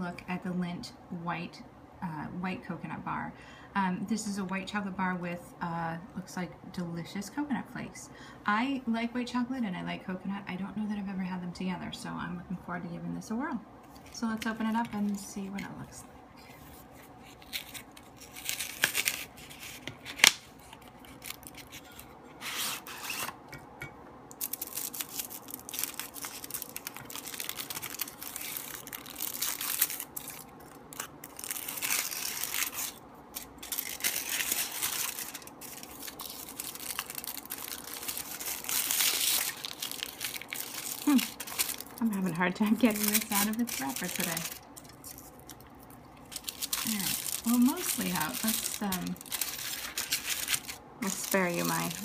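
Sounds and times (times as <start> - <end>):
foil wrapper crinkling and tearing: 16.5 - 23.4, 24.3 - 52.0
cardboard sleeve opening: 46.4 - 52.0.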